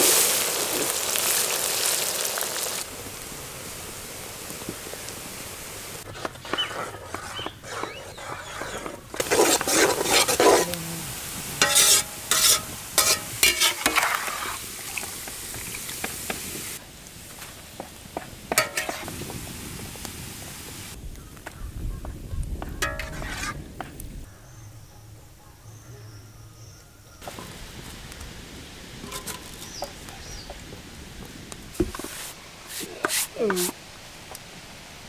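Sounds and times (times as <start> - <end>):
onions sizzling in oil: 0.0 - 7.4, 9.1 - 21.3, 27.2 - 35.0
metal skimmer scraping a wok: 6.0 - 10.8, 11.6 - 14.6, 18.5 - 19.1, 22.8 - 23.6, 29.0 - 29.8, 31.9 - 33.7.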